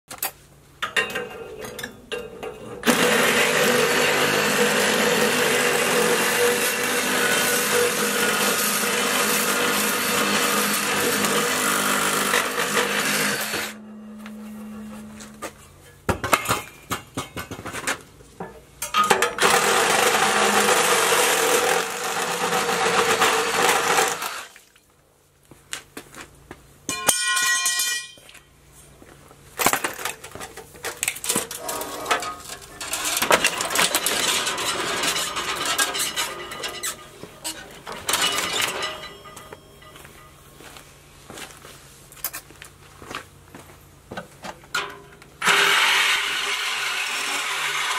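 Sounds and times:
harsh cutting tool noise: 2.8 - 15.2, 19.1 - 24.6, 31.3 - 38.9, 45.4 - 47.9
metal clanking and knocking: 16.1 - 19.4, 29.9 - 40.4.

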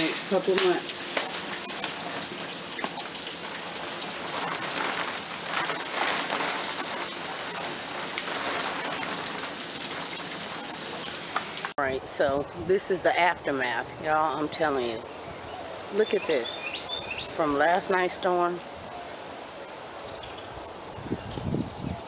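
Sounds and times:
sharp hail hits: 0.0 - 11.8
heavy rain hiss: 0.0 - 20.8.

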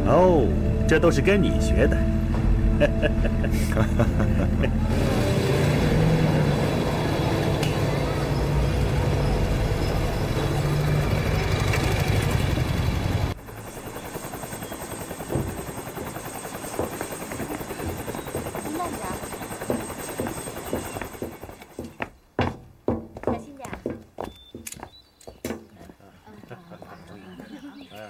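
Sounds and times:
engine drone: 0.0 - 21.8.

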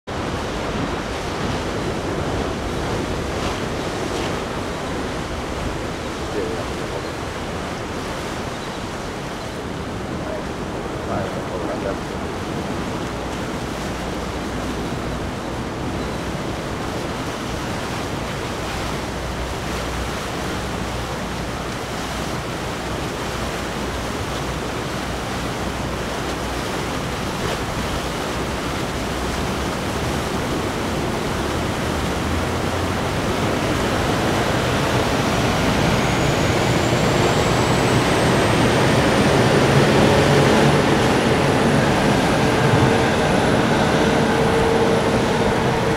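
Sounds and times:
rush of water and wind: 0.0 - 45.9
boat engine: 0.1 - 45.9
high whine: 34.7 - 45.9.

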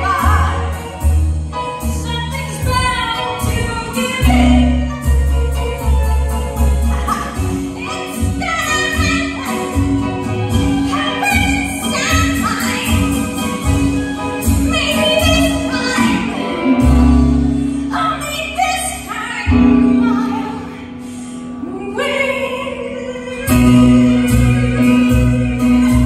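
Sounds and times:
woman singing into a microphone: 17.9 - 21.0, 21.6 - 25.2.

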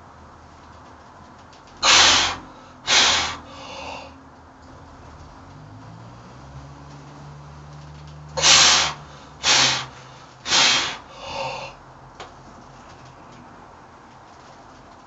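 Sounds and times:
person breathing forcefully: 1.8 - 4.2, 8.4 - 11.8.

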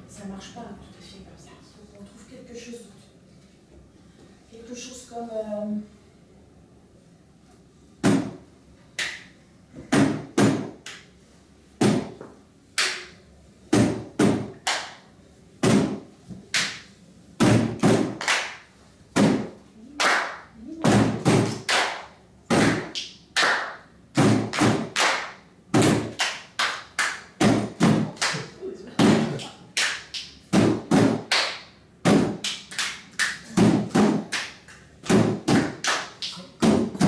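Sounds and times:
hands clapping: 9.0 - 9.3, 10.0 - 11.1, 12.8 - 13.2, 14.3 - 15.0, 15.7 - 16.9, 17.6 - 37.0.

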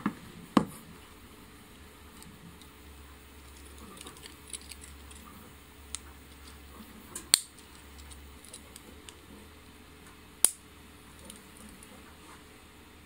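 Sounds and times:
small handling ticks: 2.1 - 9.3.

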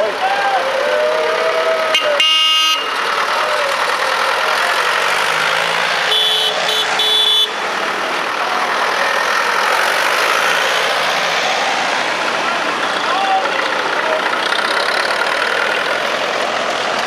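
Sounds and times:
tractor engines running: 0.0 - 17.0
horn sounding: 1.3 - 3.0, 5.8 - 7.7.

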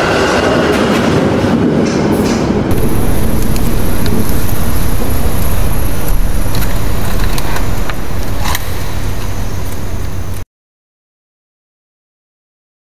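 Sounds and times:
deep bass: 2.7 - 10.4.

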